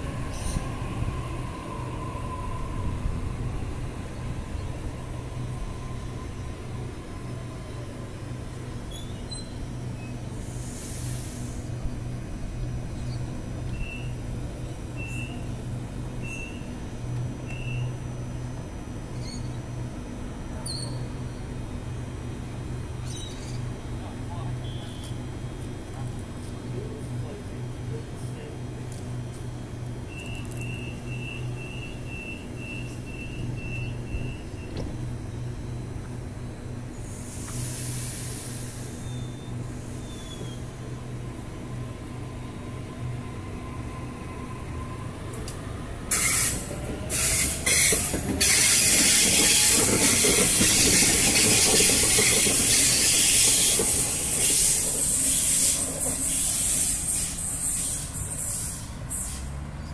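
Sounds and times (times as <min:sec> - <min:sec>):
electric train humming: 0:00.0 - 0:23.0, 0:23.7 - 0:59.1
air hiss: 0:10.4 - 0:11.7, 0:37.0 - 0:39.0, 0:52.7 - 0:59.5
train door click: 0:34.7 - 0:35.0, 0:45.3 - 0:55.0.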